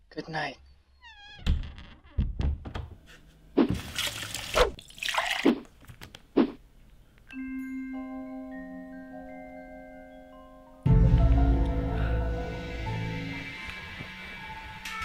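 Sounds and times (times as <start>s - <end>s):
water splashing into dish: 3.7s - 5.7s
mallet percussion music: 7.3s - 11.9s.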